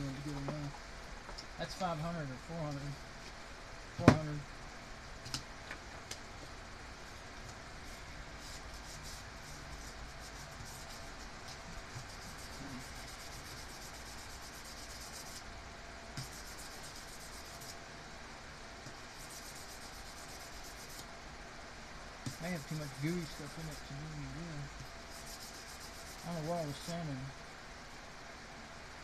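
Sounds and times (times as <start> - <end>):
sanding metal on sandpaper: 8.4 - 11.3, 12.0 - 15.4, 16.2 - 17.8, 19.1 - 21.0, 22.3 - 27.2.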